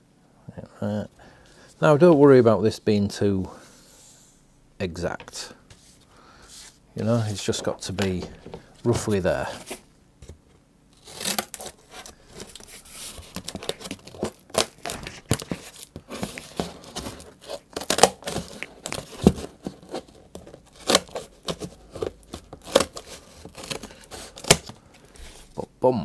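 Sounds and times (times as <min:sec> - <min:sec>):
scissors cutting cardboard: 0:11.0 - 0:24.7.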